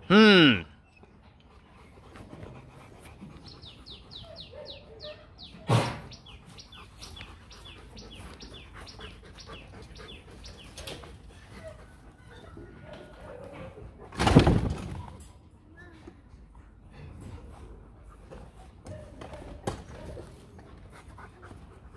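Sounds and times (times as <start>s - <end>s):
small bird chirping: 3.4s - 11.0s.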